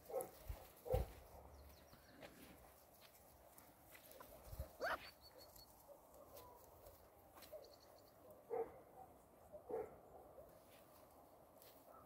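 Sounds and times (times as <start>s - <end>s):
puppy barking: 0.1s - 1.2s, 4.3s - 6.5s, 8.4s - 10.0s
puppy yelping: 4.8s - 5.6s.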